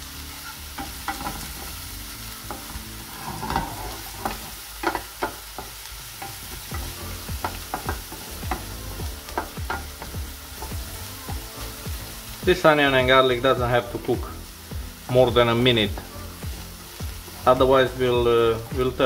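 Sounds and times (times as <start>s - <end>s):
onions and garlic sizzling in a pan: 0.0s - 19.0s
wooden spatula scraping a pan: 0.4s - 1.9s, 2.5s - 6.8s.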